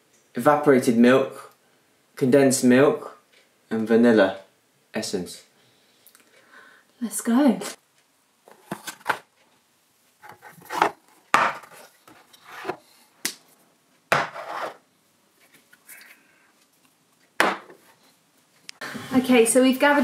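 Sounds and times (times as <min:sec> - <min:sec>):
groceries knocking on worktop: 0:10.7 - 0:11.7, 0:14.1 - 0:14.5.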